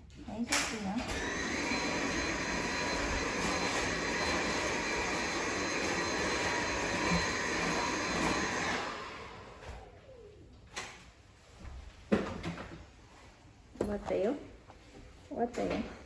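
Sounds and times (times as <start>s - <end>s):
vacuum cleaner whining: 1.0s - 10.4s
vacuum motor winding down: 1.1s - 9.9s.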